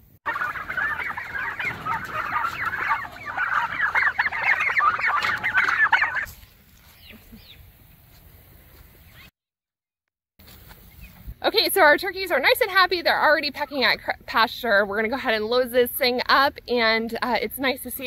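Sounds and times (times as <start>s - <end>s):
turkeys calling: 0.0s - 8.0s.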